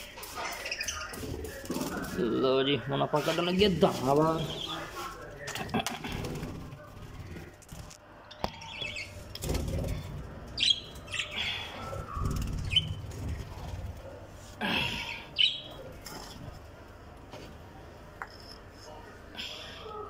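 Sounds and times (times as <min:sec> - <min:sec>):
wings flapping: 0:05.3 - 0:08.0, 0:11.4 - 0:14.4.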